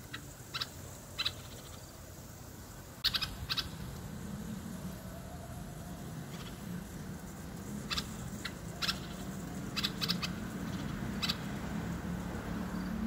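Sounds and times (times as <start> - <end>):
low background hum: 0.0 - 13.0
bird calling sharp notes: 3.0 - 4.0, 7.7 - 11.6.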